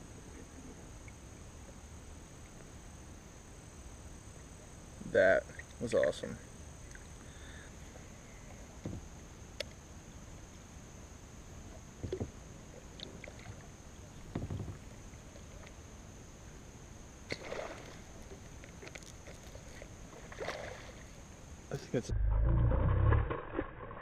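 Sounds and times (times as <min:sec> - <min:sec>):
kayak paddle strokes in water: 0:17.3 - 0:21.2.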